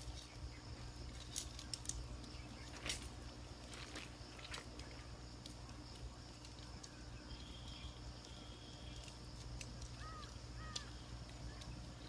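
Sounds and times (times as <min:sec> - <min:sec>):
high insect drone: 0:00.0 - 0:12.0
tent poles clicking: 0:01.0 - 0:07.1
short bird calls: 0:09.9 - 0:12.0.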